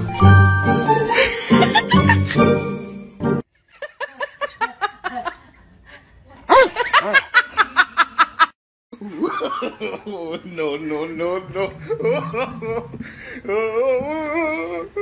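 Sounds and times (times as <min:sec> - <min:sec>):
music: 0:00.0 - 0:03.4
laugh-like vocal pulses: 0:11.5 - 0:15.0.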